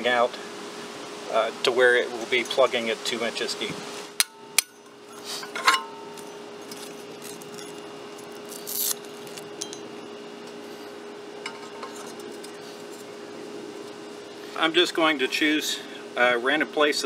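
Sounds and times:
metal scrapes and clinks: 4.6 - 10.0, 11.4 - 13.1.

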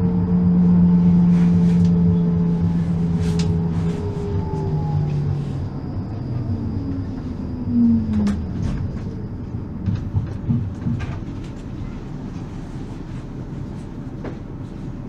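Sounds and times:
low running rumble: 0.0 - 15.0
tram motor whine: 0.0 - 15.0
knocks and clacks from rails: 9.8 - 12.5.

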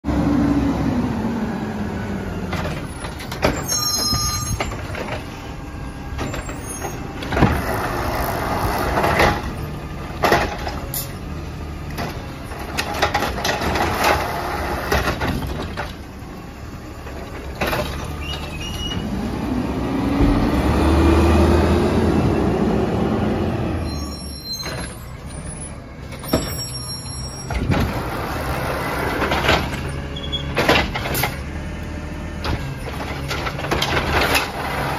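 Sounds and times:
garbage truck engine rumbling: 0.0 - 34.9
carts banging against truck: 27.5 - 31.4.

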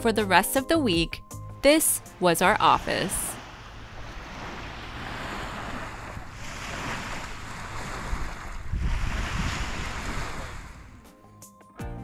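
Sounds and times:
waves washing onto beach: 2.5 - 11.0
wind buffeting microphone: 2.9 - 11.1.

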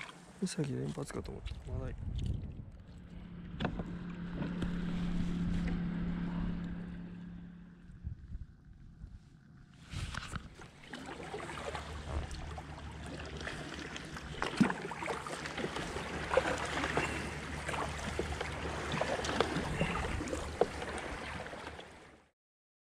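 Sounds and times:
paddle splashing water: 0.0 - 1.7, 9.9 - 22.3
water lapping against hull: 0.0 - 7.3, 9.9 - 22.3
low steady rumble: 0.1 - 22.3.

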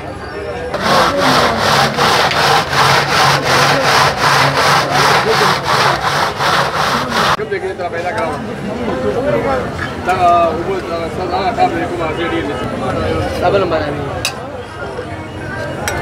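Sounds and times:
ice grinding against metal pot: 0.8 - 7.4.

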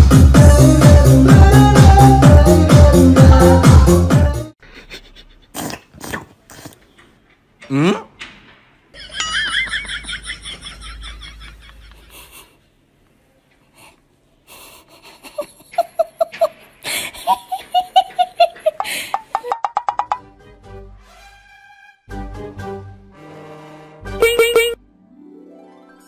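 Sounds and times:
person laughing: 4.6 - 5.6, 9.0 - 12.6, 14.5 - 19.7.

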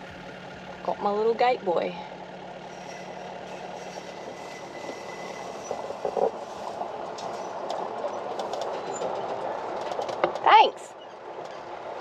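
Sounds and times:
vehicle engine running: 0.0 - 12.0
tyres rolling over dirt: 2.2 - 12.0
rattles and clicks: 2.7 - 12.0.

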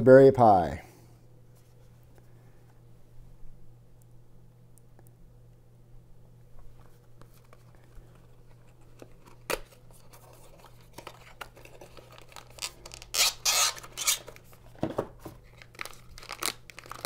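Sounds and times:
plastic bag rustling: 7.3 - 17.0.

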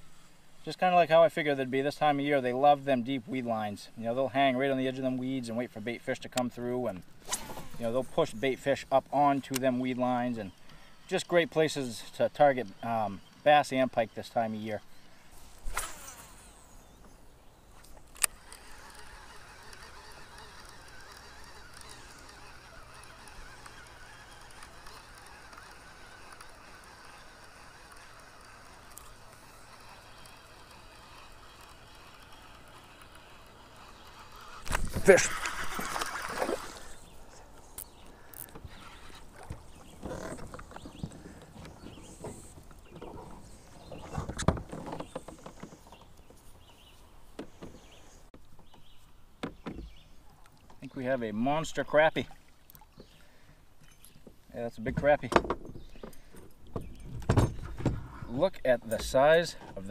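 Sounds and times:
fishing reel whirring: 10.2 - 44.4
sharp reel click: 18.1 - 36.2.

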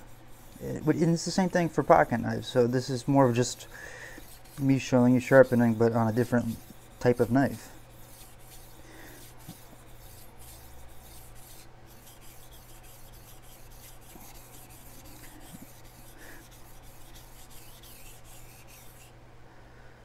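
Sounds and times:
knife rasping on whetstone: 0.0 - 19.1.

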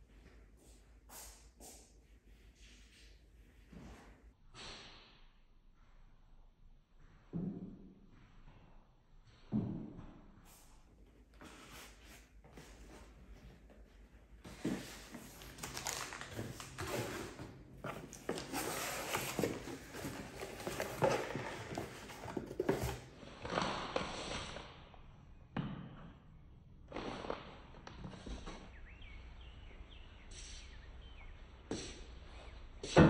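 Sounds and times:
cardboard packaging rustling: 14.5 - 23.1.

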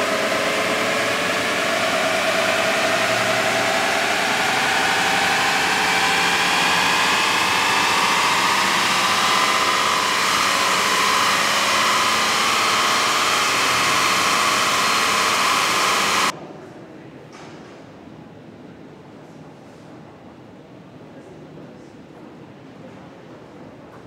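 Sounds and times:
electric motor whining: 0.0 - 16.3.

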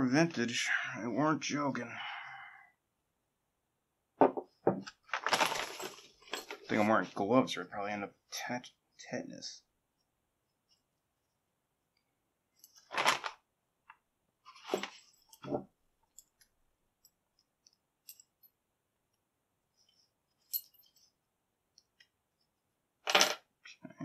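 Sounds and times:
plastic envelope crinkling: 5.0 - 6.2, 12.9 - 13.4.

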